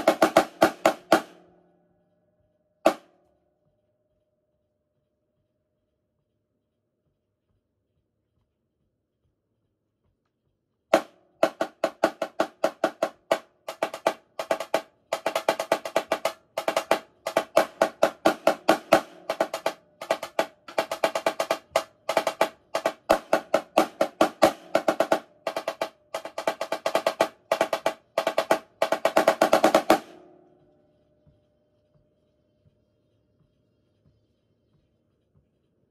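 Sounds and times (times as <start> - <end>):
marching snare drum: 0.0 - 1.5, 10.9 - 30.4.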